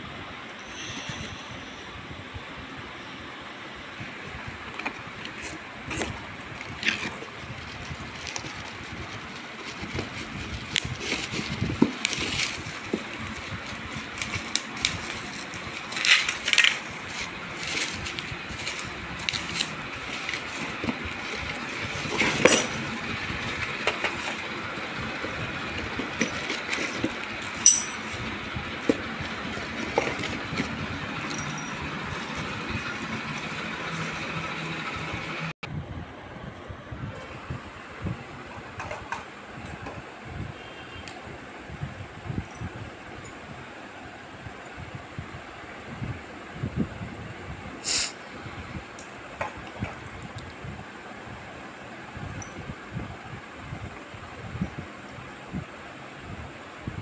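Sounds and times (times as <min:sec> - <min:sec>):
steady background noise: 0:00.0 - 0:57.0
cardboard and plastic rustling: 0:04.4 - 0:35.0
plastic wrap crinkling: 0:06.7 - 0:28.4.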